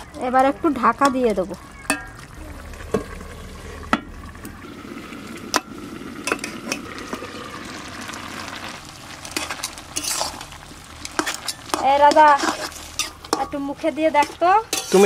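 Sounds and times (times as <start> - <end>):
curry simmering and sizzling: 0.0 - 15.0
metal spatula scraping: 9.2 - 15.0.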